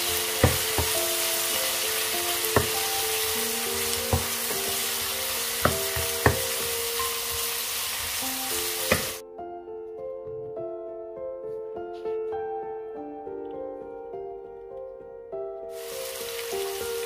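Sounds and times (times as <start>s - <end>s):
meat sizzling in oil: 0.0s - 9.2s, 15.7s - 17.0s
wooden spatula knocking pan: 0.3s - 1.2s, 2.5s - 4.9s, 5.5s - 8.2s, 8.9s - 9.2s.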